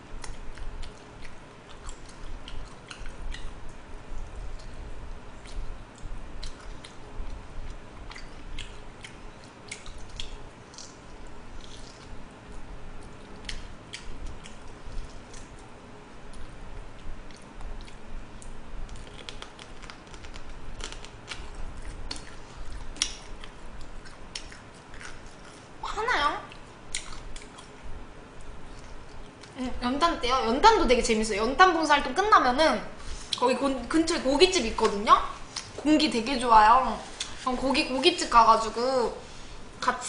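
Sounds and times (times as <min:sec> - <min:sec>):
person chewing close up: 0:00.1 - 0:25.8, 0:26.5 - 0:29.6.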